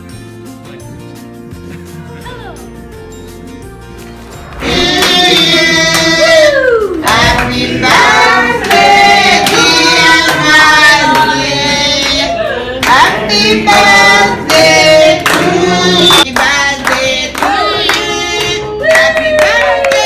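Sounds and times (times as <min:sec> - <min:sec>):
group of adults singing: 0:04.4 - 0:20.0
people clapping along: 0:04.5 - 0:20.0.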